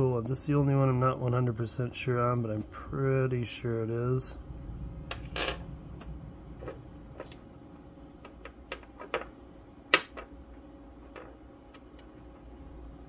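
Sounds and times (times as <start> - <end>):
pebbles clicking on tabletop: 11.0 - 12.3.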